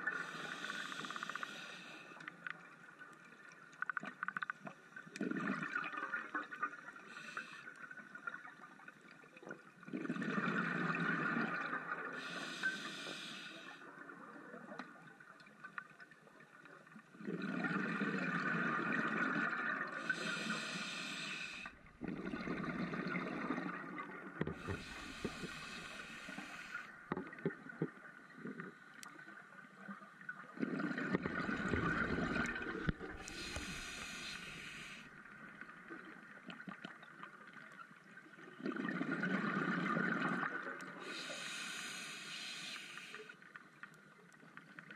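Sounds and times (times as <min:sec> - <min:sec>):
regulator inhalation hissing: 0:00.1 - 0:02.1, 0:12.2 - 0:13.8, 0:20.0 - 0:21.7, 0:24.6 - 0:26.9, 0:33.2 - 0:35.1, 0:41.0 - 0:43.4
exhaled bubbles rumbling: 0:17.2 - 0:20.1, 0:21.8 - 0:25.6, 0:30.4 - 0:34.1, 0:38.5 - 0:40.8.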